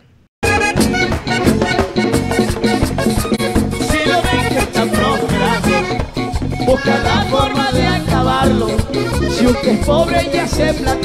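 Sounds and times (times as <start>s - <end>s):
latin dance band music: 0.4s - 11.0s
man singing: 3.8s - 6.0s, 6.6s - 11.0s.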